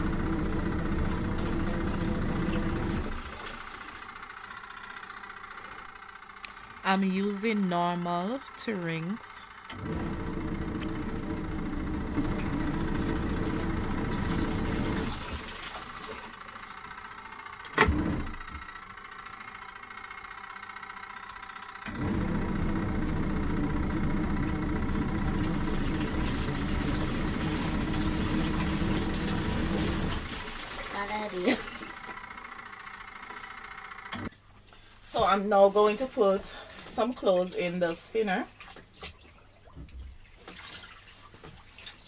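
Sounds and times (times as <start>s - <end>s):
washing machine motor humming: 0.0s - 34.4s, 35.0s - 38.5s.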